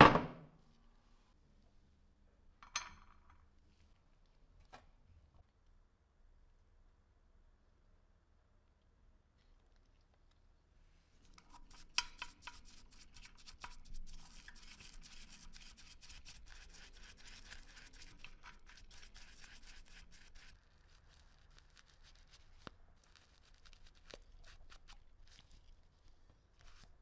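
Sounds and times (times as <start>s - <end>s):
brush scrubbing porcelain bottle: 11.2s - 27.0s.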